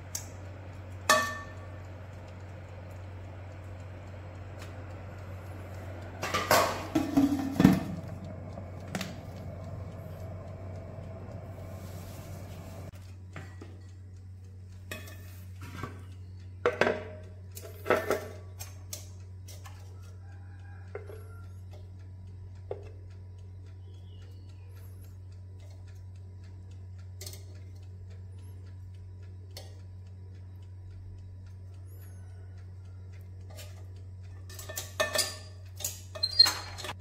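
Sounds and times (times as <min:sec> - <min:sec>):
steady low hum: 0:00.0 - 0:36.2
tongs tapping on a plate: 0:00.1 - 0:12.8, 0:14.8 - 0:16.0, 0:16.6 - 0:21.9, 0:22.6 - 0:23.0, 0:32.0 - 0:36.5
metal tongs clattering: 0:34.5 - 0:37.0.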